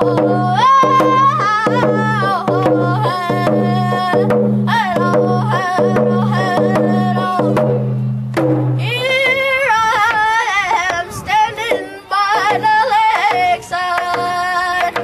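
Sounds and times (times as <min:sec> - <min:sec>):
person singing in wavering voice: 0:00.0 - 0:08.1, 0:08.8 - 0:15.0
hand drum beaten steadily: 0:00.0 - 0:09.4.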